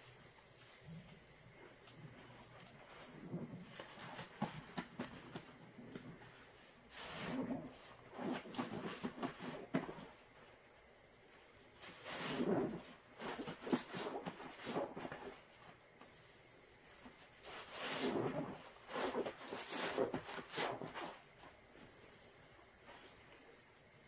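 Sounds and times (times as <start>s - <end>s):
wet squelching suds: 17.7s - 21.2s.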